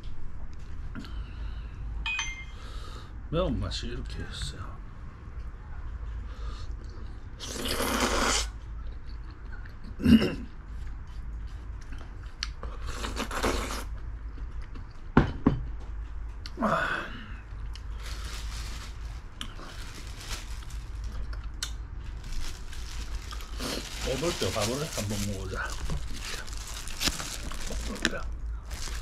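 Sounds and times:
person chewing: 19.3 - 24.1.

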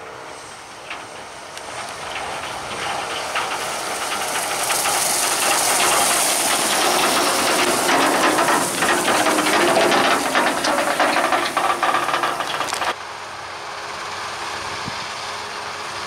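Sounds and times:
hissing tyre and trailer noise: 0.0 - 16.0
tractor diesel engine running: 0.0 - 16.0
rattling clatter: 0.7 - 13.0.

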